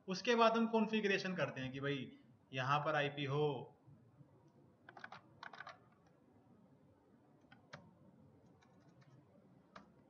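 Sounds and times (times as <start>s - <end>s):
typing on computer keyboard: 4.9s - 6.0s.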